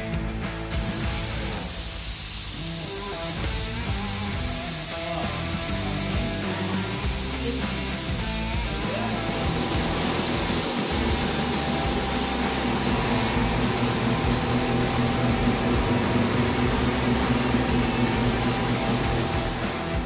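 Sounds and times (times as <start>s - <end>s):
spray gun hissing: 0.7s - 20.0s
low hum: 5.3s - 20.0s.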